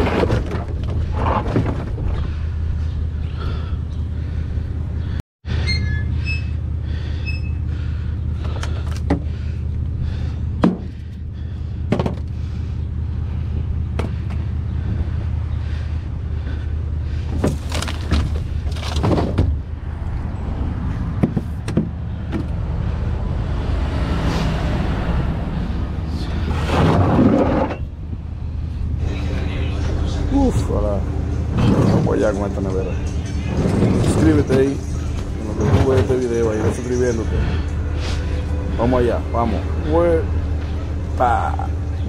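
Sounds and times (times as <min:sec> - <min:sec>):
truck engine idling: 0:00.6 - 0:23.4, 0:27.8 - 0:42.0
knocks and bumps: 0:10.6 - 0:11.1, 0:11.9 - 0:12.4, 0:17.3 - 0:19.7, 0:21.1 - 0:22.6.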